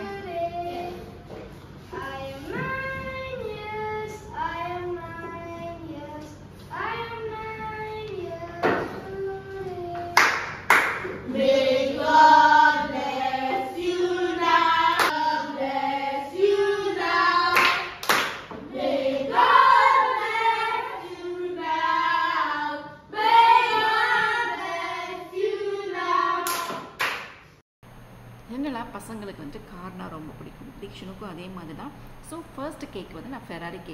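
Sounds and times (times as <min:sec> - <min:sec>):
children and woman singing: 0:00.0 - 0:01.3, 0:01.9 - 0:10.2, 0:11.3 - 0:17.9, 0:18.7 - 0:26.8
hand claps: 0:10.2 - 0:11.2, 0:15.0 - 0:15.2, 0:17.5 - 0:18.5, 0:26.4 - 0:27.4.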